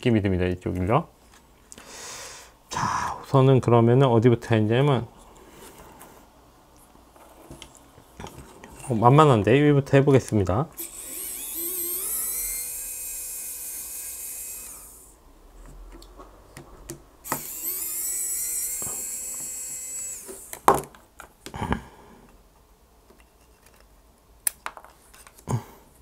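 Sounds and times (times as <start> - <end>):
electric screwdriver whining: 10.8 - 15.2, 17.2 - 20.7.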